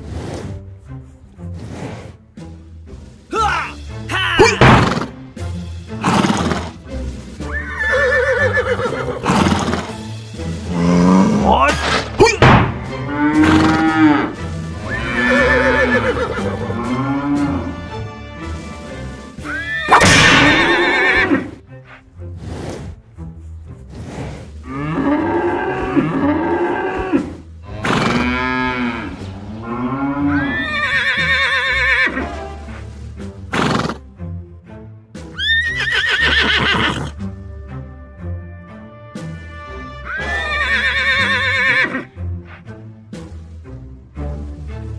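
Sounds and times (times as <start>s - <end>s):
background music: 0.0s - 44.9s
horse whinnying: 4.2s - 5.2s, 6.0s - 6.8s, 7.4s - 10.0s, 13.2s - 17.2s, 19.4s - 22.0s, 24.0s - 32.4s, 33.5s - 34.0s, 35.4s - 37.2s, 40.0s - 42.1s.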